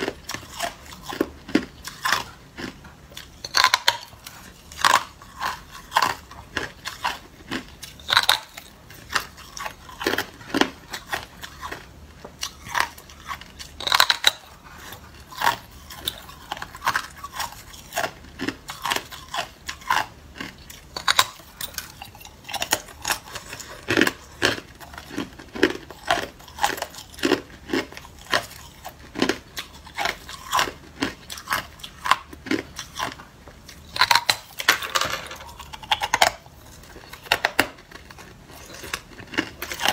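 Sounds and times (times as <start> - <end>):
person chewing ice: 0.0 - 39.9.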